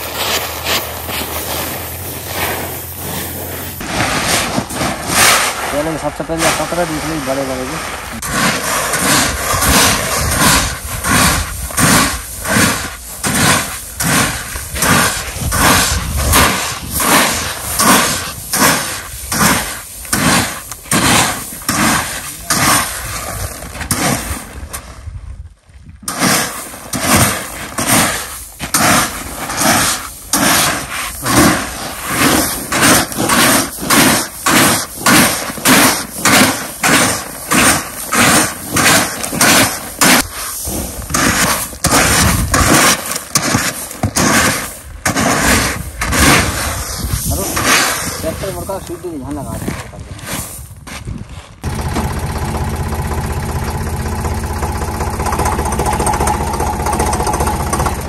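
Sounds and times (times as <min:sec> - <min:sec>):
granules pouring from plastic pans: 0:00.0 - 0:24.6.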